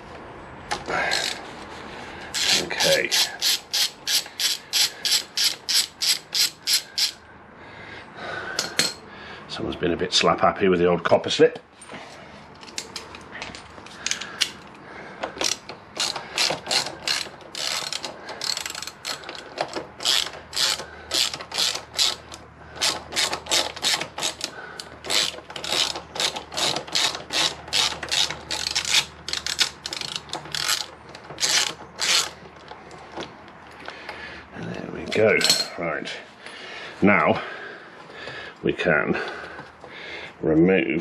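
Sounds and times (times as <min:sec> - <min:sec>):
socket ratchet clicking: 0:02.4 - 0:07.2, 0:14.0 - 0:32.4.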